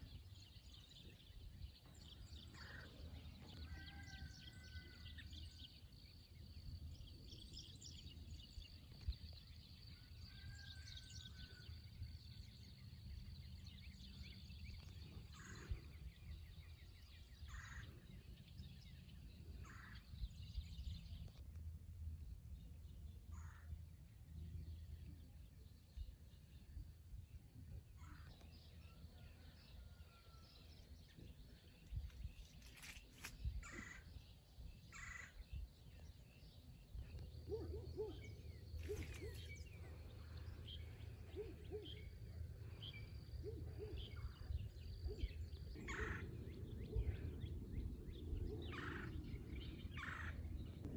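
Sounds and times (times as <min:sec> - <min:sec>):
low steady rumble: 0:11.7 - 0:50.9.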